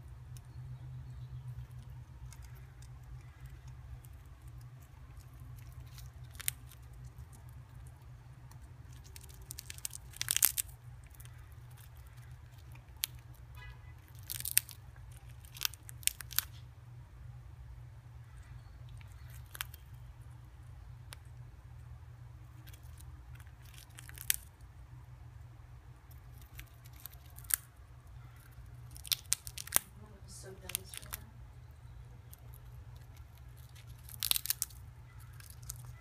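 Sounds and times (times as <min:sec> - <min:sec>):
low steady hum: 0:00.0 - 0:36.0
parrot cracking peanut shell: 0:01.2 - 0:16.6, 0:18.9 - 0:20.0, 0:22.5 - 0:24.6, 0:26.1 - 0:29.9, 0:32.2 - 0:36.0.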